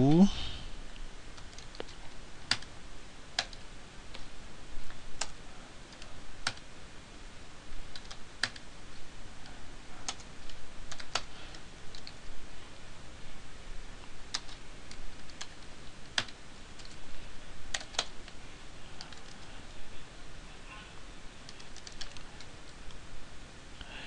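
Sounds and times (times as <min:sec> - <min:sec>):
computer keyboard keystrokes: 0:01.4 - 0:02.7, 0:03.4 - 0:04.3, 0:05.2 - 0:06.7, 0:07.9 - 0:08.7, 0:10.0 - 0:11.3, 0:11.9 - 0:12.3, 0:14.3 - 0:17.0, 0:17.7 - 0:18.4, 0:19.0 - 0:19.5, 0:21.4 - 0:22.5.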